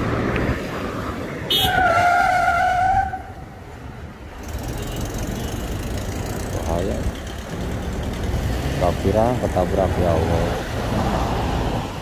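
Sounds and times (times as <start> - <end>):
traffic driving past: 0.0 - 12.0
vehicle horn blaring: 1.5 - 2.7.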